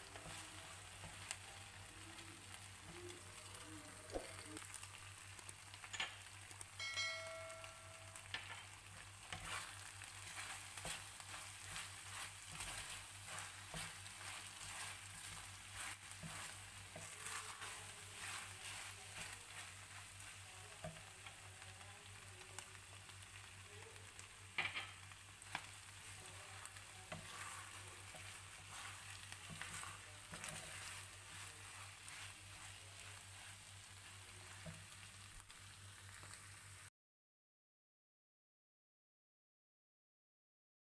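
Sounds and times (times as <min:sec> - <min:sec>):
spatula scraping a pan: 0:00.0 - 0:01.5, 0:08.2 - 0:21.5, 0:24.6 - 0:35.2
food sizzling in a frying pan: 0:00.0 - 0:36.9
brief ringing tone: 0:06.8 - 0:08.1.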